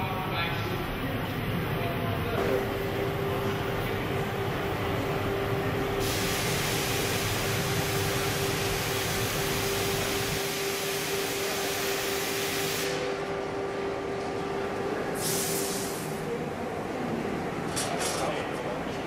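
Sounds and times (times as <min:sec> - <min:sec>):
constant hum: 0:00.0 - 0:19.0
furnace rushing roar: 0:00.0 - 0:19.0.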